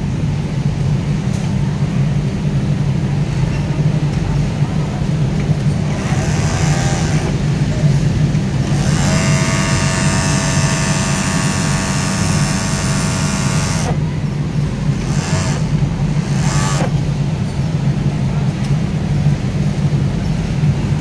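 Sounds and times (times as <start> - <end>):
steady low hum: 0.0 - 21.0
overlock machine whirring: 2.1 - 21.0
bursts of machine stitching: 5.8 - 14.1, 14.9 - 17.1.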